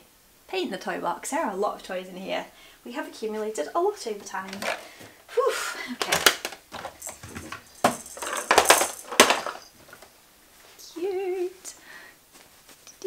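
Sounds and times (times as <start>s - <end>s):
plastic toys clattering: 4.3s - 5.1s, 5.9s - 10.1s.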